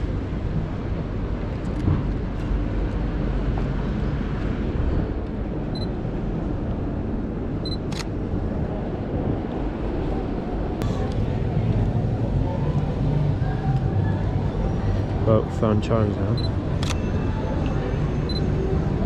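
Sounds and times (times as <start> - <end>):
street traffic rumble: 0.0 - 19.0
camera focus beep: 16.4 - 17.1, 18.3 - 18.5.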